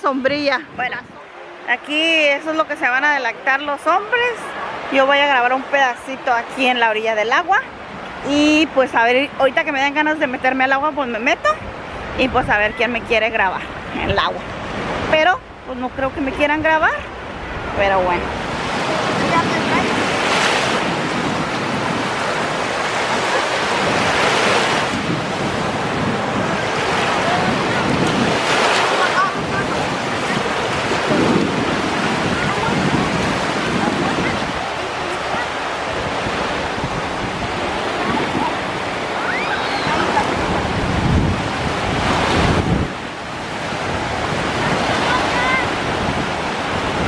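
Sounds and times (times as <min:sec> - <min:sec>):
wind buffeting microphone: 0:00.0 - 0:01.3, 0:07.5 - 0:47.0
small surf washing on sand: 0:17.6 - 0:47.0.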